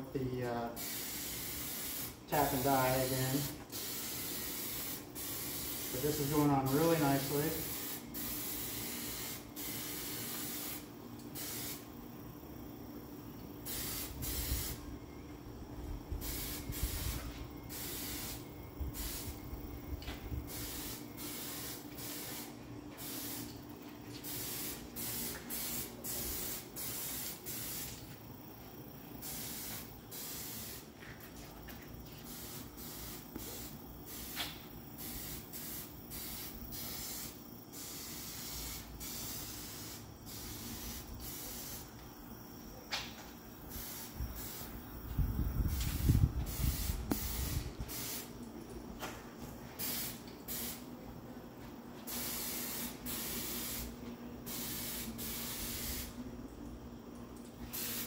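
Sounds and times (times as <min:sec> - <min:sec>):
aerosol can spraying hisses: 0:00.8 - 0:11.8, 0:13.7 - 0:14.8, 0:16.2 - 0:19.4, 0:20.5 - 0:28.0, 0:29.2 - 0:30.9, 0:32.2 - 0:41.9, 0:43.7 - 0:44.8, 0:45.6 - 0:48.4, 0:49.8 - 0:50.8, 0:52.0 - 0:56.2, 0:57.6 - 0:58.0.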